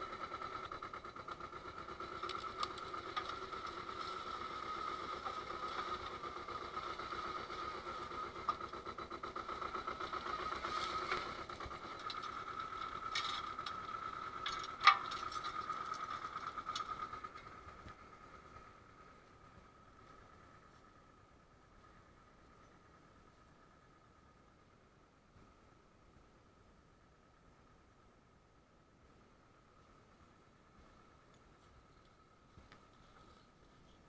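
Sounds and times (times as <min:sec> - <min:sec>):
tractor engine running: 0:00.0 - 0:28.2
winch chain rattling: 0:08.3 - 0:17.3.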